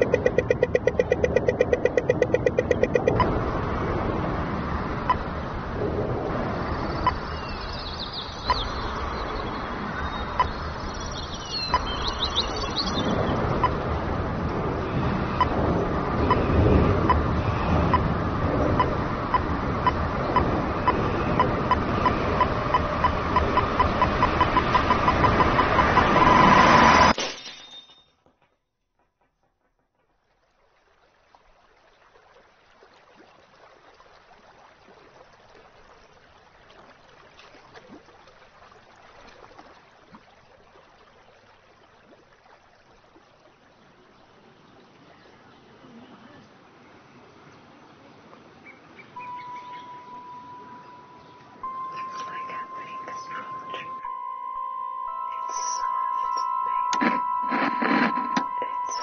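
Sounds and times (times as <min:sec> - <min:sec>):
high electronic beeping: 0:00.0 - 0:03.3, 0:21.4 - 0:26.8, 0:49.3 - 0:59.0.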